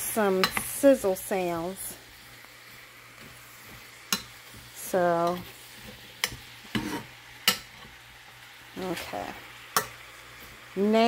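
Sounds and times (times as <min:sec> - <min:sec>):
faint sizzle of frying: 0:00.0 - 0:11.0
metal spoon stirring apples: 0:00.3 - 0:00.8, 0:03.2 - 0:08.0
spoon tapping a pan: 0:00.4 - 0:00.7, 0:04.0 - 0:05.5, 0:06.2 - 0:08.0, 0:09.7 - 0:10.0.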